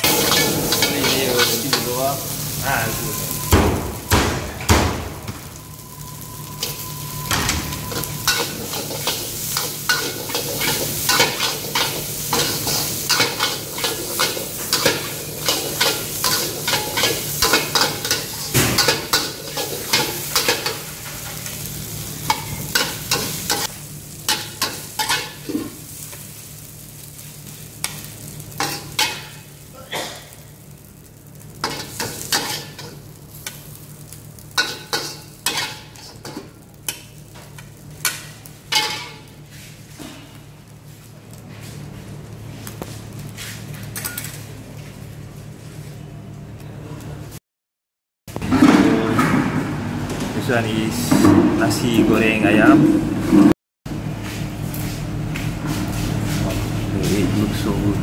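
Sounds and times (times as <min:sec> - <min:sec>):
fried rice sizzling: 0:00.0 - 0:46.0
spatula scraping a wok: 0:07.8 - 0:21.5, 0:31.7 - 0:33.0, 0:34.6 - 0:36.4.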